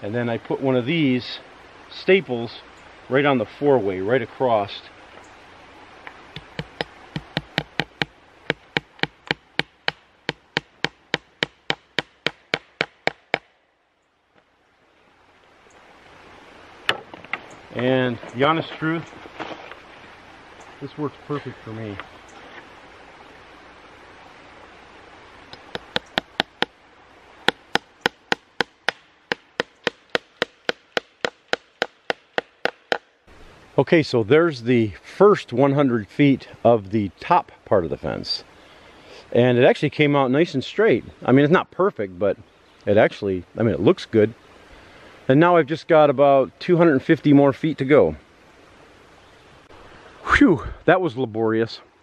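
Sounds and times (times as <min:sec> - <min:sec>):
hammer striking fence staple: 0:06.4 - 0:13.5, 0:25.6 - 0:26.7, 0:27.5 - 0:33.0.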